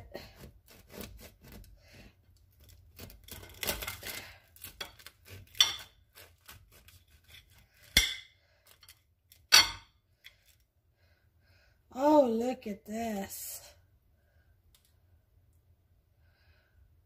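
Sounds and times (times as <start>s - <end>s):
bread knife sawing through roll: 0.0s - 7.9s.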